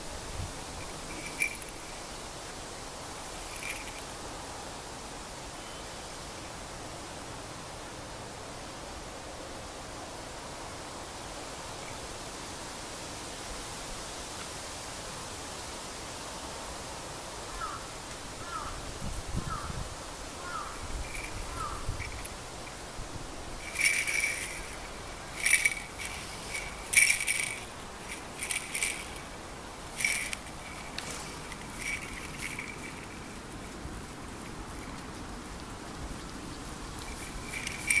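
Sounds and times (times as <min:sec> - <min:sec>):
small bell jingling: 0:00.6 - 0:02.1, 0:03.3 - 0:04.2, 0:20.4 - 0:35.5, 0:36.8 - 0:38.0.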